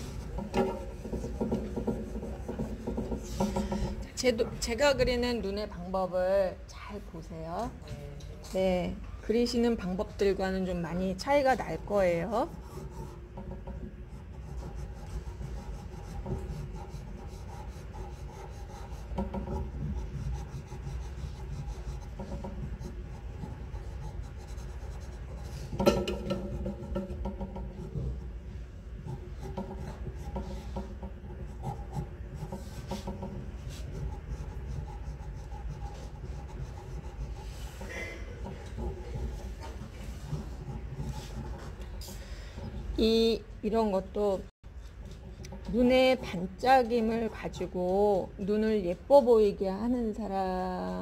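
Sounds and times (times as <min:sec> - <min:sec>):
pencil scratching on paper: 0:00.0 - 0:03.9, 0:09.6 - 0:42.0
low steady hum: 0:00.0 - 0:51.0.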